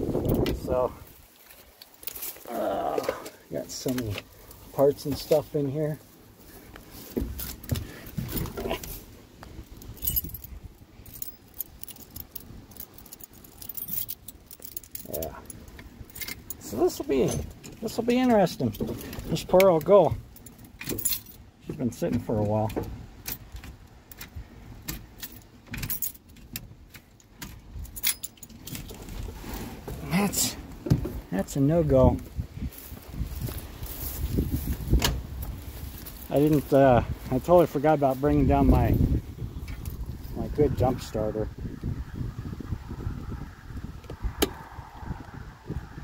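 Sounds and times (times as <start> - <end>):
wind buffeting microphone: 0.0 - 1.2, 28.9 - 46.0
keys jangling and clicking: 9.8 - 17.5, 20.3 - 21.4, 24.9 - 29.0.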